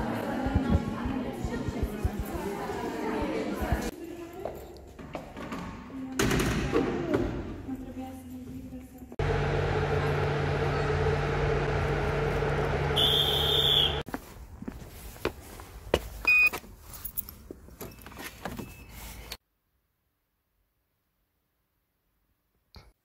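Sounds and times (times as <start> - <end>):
short beep: 13.0 - 14.0.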